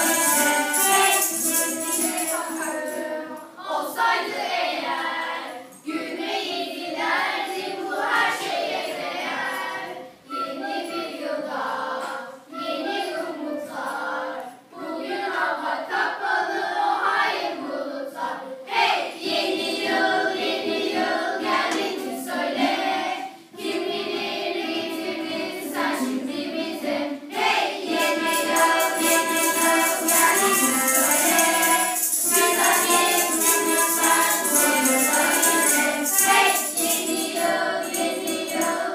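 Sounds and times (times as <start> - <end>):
jingling percussion: 0.0 - 3.6, 27.4 - 38.9
children's choir singing: 0.0 - 38.9.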